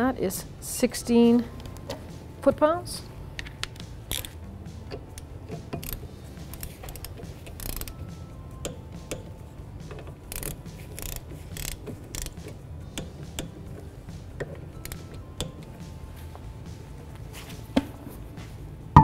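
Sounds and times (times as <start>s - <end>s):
ratchet wrench clicking: 3.7s - 4.4s, 5.6s - 8.0s, 9.9s - 13.5s.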